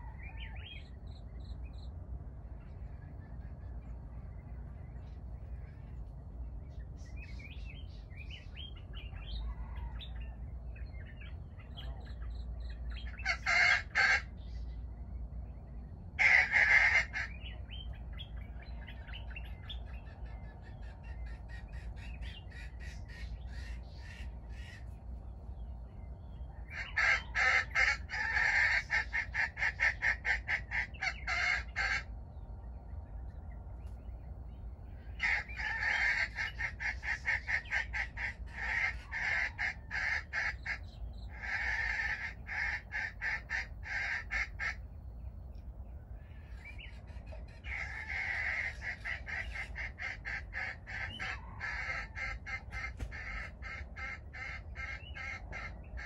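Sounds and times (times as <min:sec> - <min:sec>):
jungle fowl calling: 0:00.0 - 0:01.0, 0:07.2 - 0:14.8, 0:16.1 - 0:25.2, 0:26.2 - 0:32.1, 0:34.9 - 0:45.0, 0:45.9 - 0:56.0
small birds chirping softly: 0:00.0 - 0:56.0.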